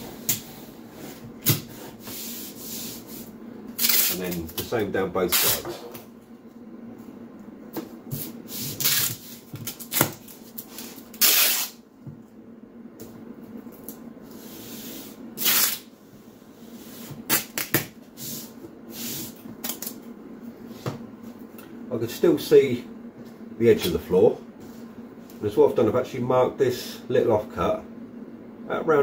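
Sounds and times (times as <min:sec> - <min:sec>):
tape rubbed on floor: 0:00.6 - 0:04.2
masking tape ripping off roll: 0:03.8 - 0:04.4, 0:08.8 - 0:11.8, 0:15.4 - 0:15.9.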